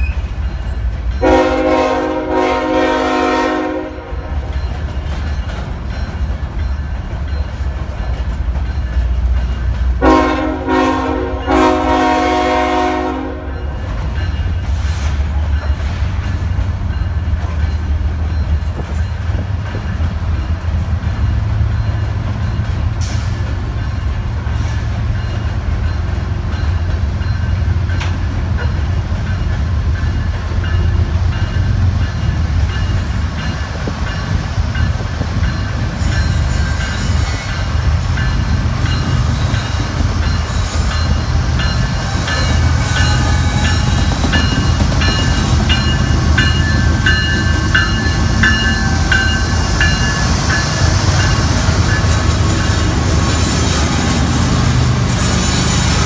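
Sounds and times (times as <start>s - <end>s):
low rumble of diesel train: 0.0s - 56.0s
locomotive air horn blasts: 1.2s - 4.3s, 10.0s - 13.6s.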